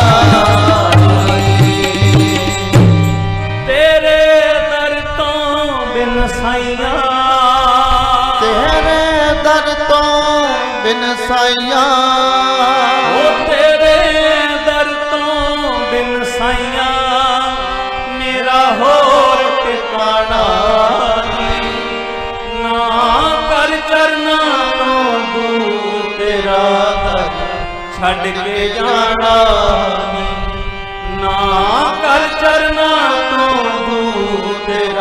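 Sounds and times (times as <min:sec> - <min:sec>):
devotional song with drum beat: 0:00.0 - 0:04.9.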